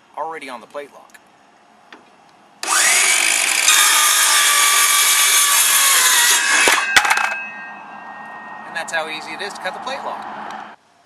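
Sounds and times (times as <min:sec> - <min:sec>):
saw cutting plastic: 0:02.6 - 0:07.4
circular saw whining: 0:02.6 - 0:10.8.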